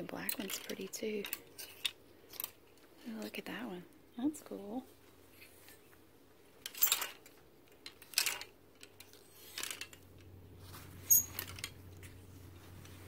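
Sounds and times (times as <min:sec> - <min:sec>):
hangers scraping along rack rail: 0:00.2 - 0:02.6, 0:06.6 - 0:10.0, 0:10.6 - 0:13.0.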